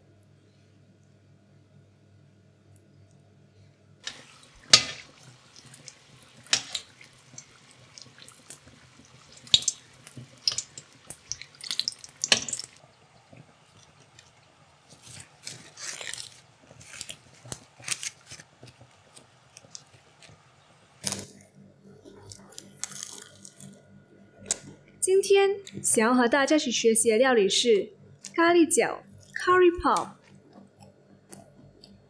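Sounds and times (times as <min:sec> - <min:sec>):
food deep-frying in oil: 0:04.0 - 0:21.4
sharp clicks of oil: 0:09.3 - 0:12.8.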